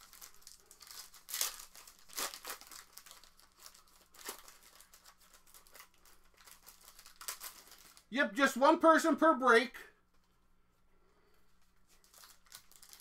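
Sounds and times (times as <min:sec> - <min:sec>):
plastic wrappers crinkling: 0:00.0 - 0:08.1, 0:11.6 - 0:13.0.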